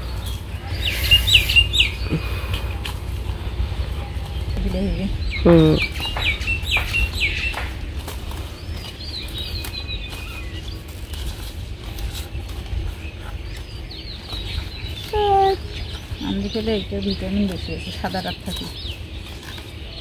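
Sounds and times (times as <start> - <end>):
hen clucking: 0.0 - 7.8
leaves rustling and snapping: 0.0 - 20.0
low steady rumble: 0.0 - 20.0
songbirds chirping: 0.0 - 20.0.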